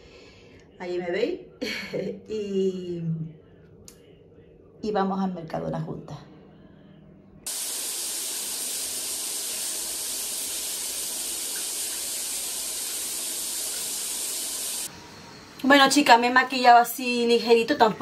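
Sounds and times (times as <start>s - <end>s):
water running: 7.5s - 14.9s.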